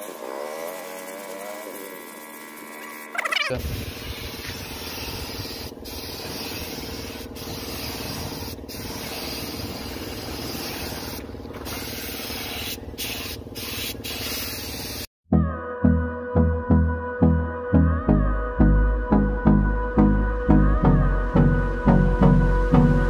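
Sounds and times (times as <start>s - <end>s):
spray gun hissing: 3.6s - 15.1s.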